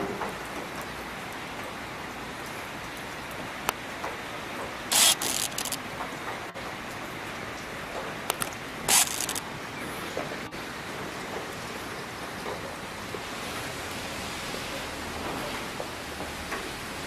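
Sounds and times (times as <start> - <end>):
rain falling: 0.0 - 17.0
loud bursts of hiss: 4.9 - 5.8, 8.4 - 9.4.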